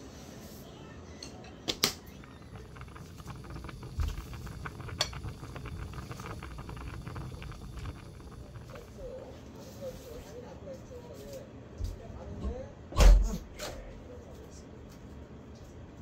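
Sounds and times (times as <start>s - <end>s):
water boiling hard: 2.0s - 9.9s.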